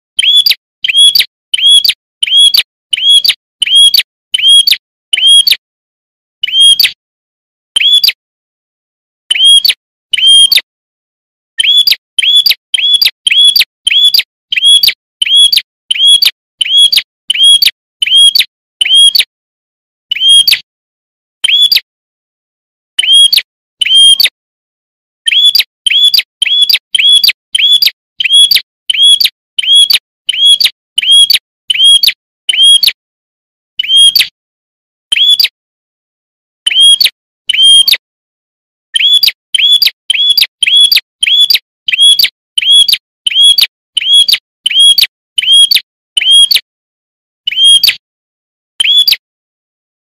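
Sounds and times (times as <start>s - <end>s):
bird chirping: 0.2s - 5.6s, 6.4s - 7.0s, 7.8s - 8.2s, 9.3s - 10.6s, 11.6s - 19.2s, 20.1s - 20.6s, 21.4s - 21.9s, 23.0s - 24.3s, 25.3s - 32.8s, 33.8s - 34.3s, 35.1s - 35.6s, 36.6s - 38.0s, 38.9s - 46.6s, 47.5s - 48.0s, 48.8s - 49.2s.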